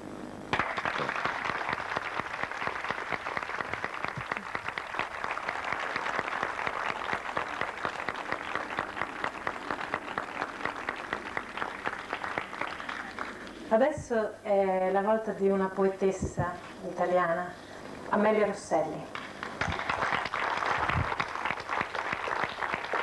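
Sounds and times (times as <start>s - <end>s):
audience applauding: 0.5s - 13.7s, 19.1s - 23.0s.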